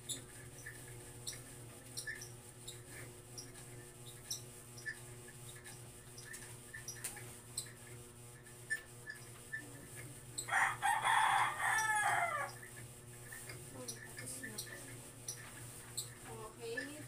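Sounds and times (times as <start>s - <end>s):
rooster crowing: 10.5s - 12.6s.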